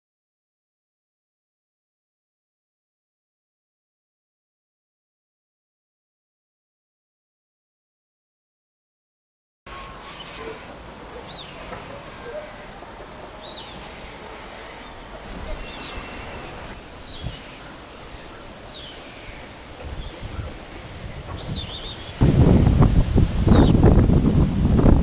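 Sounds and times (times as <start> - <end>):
high-pitched insect trill: 9.7 - 16.8, 20.2 - 23.7.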